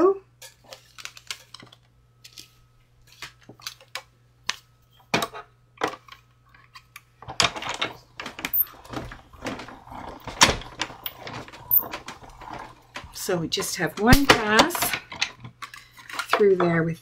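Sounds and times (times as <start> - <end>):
plastic plates and metal dies clacking: 10.3 - 16.6.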